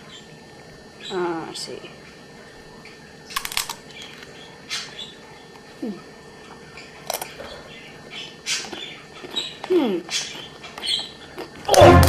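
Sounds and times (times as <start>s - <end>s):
lettuce crunching while chewing: 8.5s - 12.0s.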